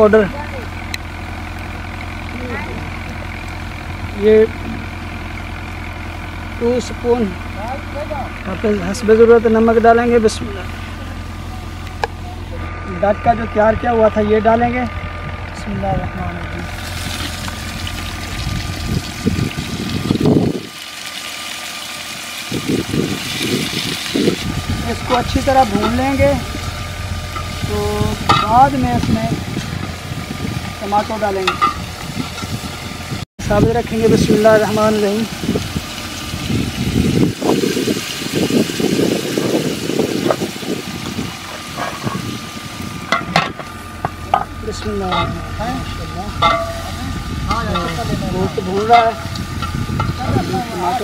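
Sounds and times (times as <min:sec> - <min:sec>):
low rumble: 0:00.0 - 0:21.1, 0:22.4 - 0:51.0
meat sizzling in hot oil: 0:16.6 - 0:33.2, 0:33.9 - 0:45.5
rough low noise: 0:22.5 - 0:37.7, 0:40.1 - 0:51.0
ladle clinking against metal pot: 0:46.4 - 0:46.9.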